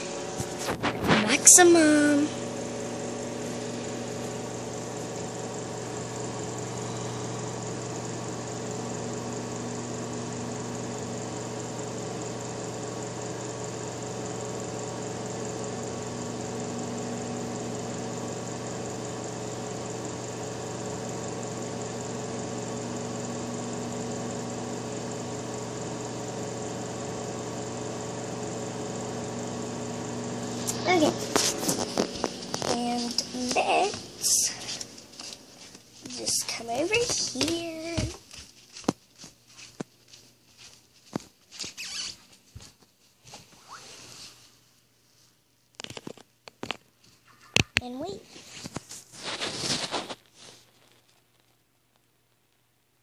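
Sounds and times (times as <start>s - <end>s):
microwave oven humming: 0.0s - 38.5s.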